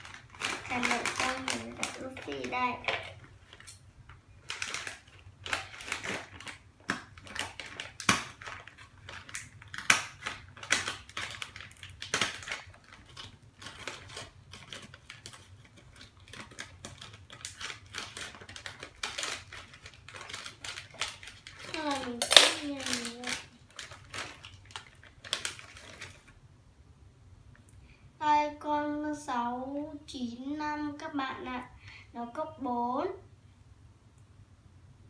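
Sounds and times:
plastic bag crinkling: 0.0 - 26.4.

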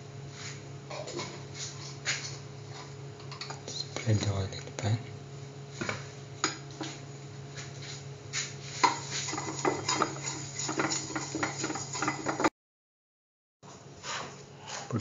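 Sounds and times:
utensil scraping a frying pan: 8.6 - 12.5.

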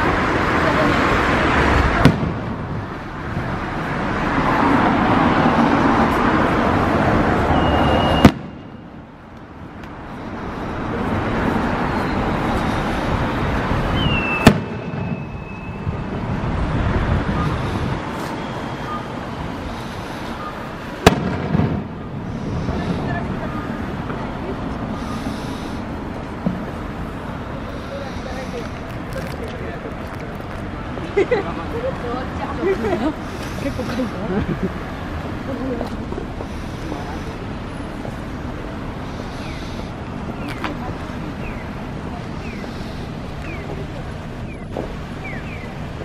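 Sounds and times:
street traffic hum: 0.0 - 46.0
fireworks bangs: 1.7 - 3.5, 7.5 - 8.8, 14.0 - 16.3, 20.8 - 24.2.

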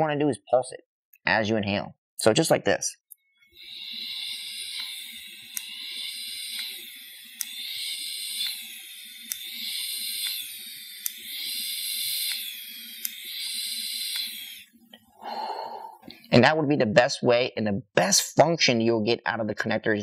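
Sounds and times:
vaporizer coil hissing sizzle: 3.5 - 16.4.

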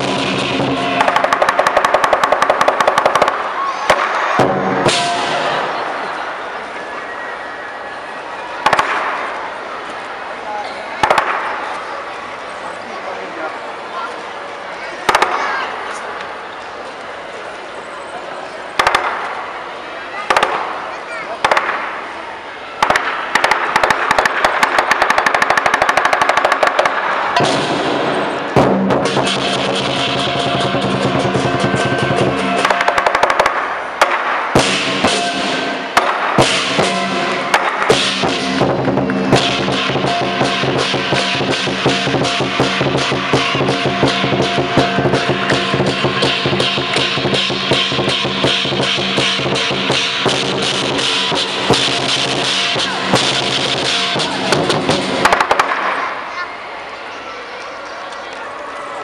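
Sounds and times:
drum beating steady rhythm: 0.0 - 5.9, 22.8 - 56.2
firecrackers crackling: 0.0 - 6.6, 8.5 - 10.2, 10.9 - 12.1, 15.0 - 16.0, 18.8 - 56.6.

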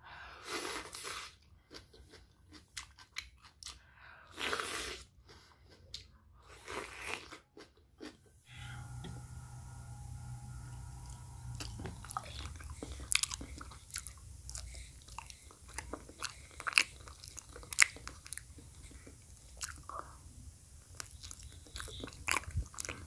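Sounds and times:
person chewing wetly: 1.1 - 3.8, 13.2 - 23.0.

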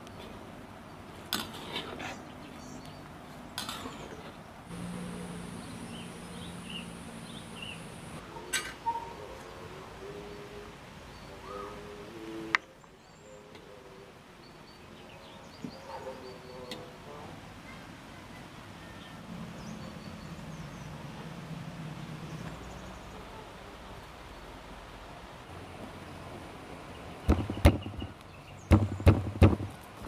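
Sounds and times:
birds chirping: 0.0 - 8.2, 8.8 - 17.0, 18.8 - 23.4, 26.8 - 29.7.

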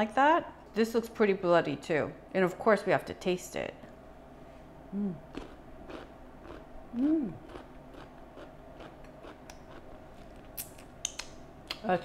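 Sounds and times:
person humming: 4.9 - 5.3, 6.9 - 7.5
chewing crunchy vegetables: 5.3 - 6.7, 7.3 - 11.8.

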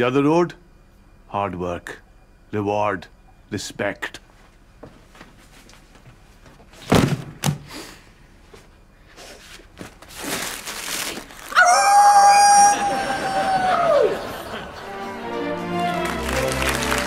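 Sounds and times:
rustling: 9.2 - 11.6.

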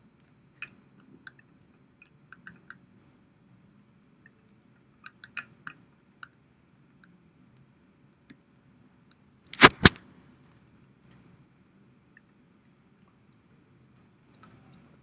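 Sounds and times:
faint low room hum: 0.0 - 15.0
light clicks and taps: 13.8 - 14.9.

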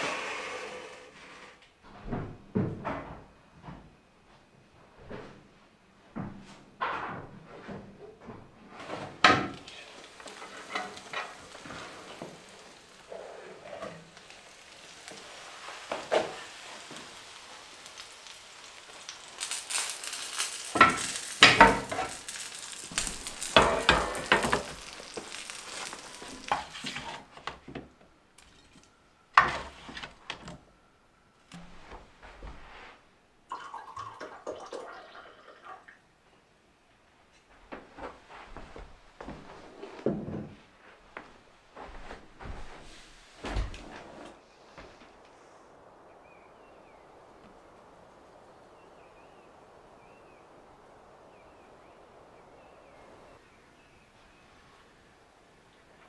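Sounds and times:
food sizzling on roasting tray: 8.8 - 27.7, 28.4 - 30.5
pans knocking and scraping: 9.0 - 13.1, 20.0 - 28.8.

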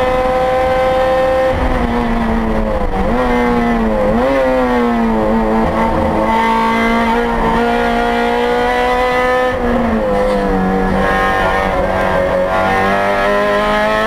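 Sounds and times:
race car engine under full throttle: 0.0 - 14.0.

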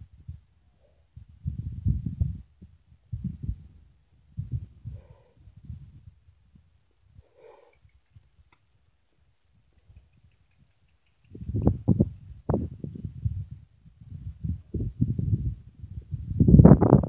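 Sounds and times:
horse snorting: 7.3 - 7.9.

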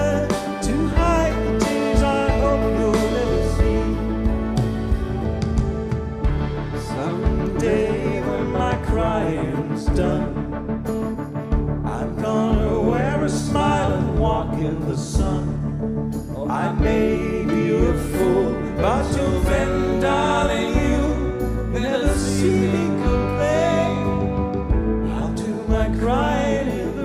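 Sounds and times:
man singing: 0.0 - 5.0, 6.8 - 11.0, 11.8 - 27.0
live band music: 0.0 - 27.0.

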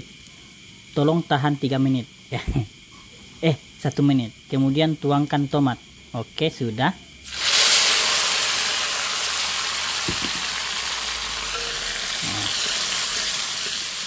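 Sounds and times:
tomatoes sizzling in pan: 7.2 - 14.0
knock: 10.1 - 10.4.

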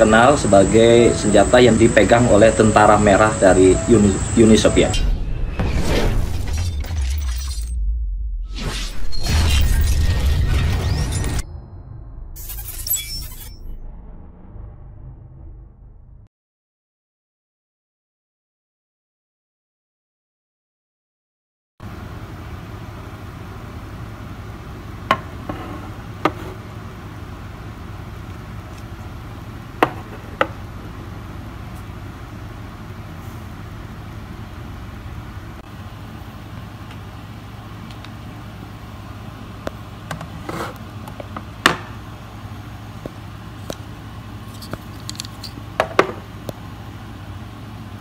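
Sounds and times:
steady low hum: 0.0 - 7.0, 21.8 - 48.0.

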